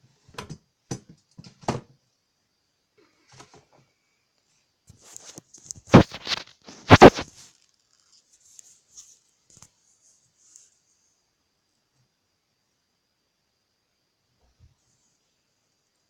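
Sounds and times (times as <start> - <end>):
handling noise rustling: 4.9 - 9.6.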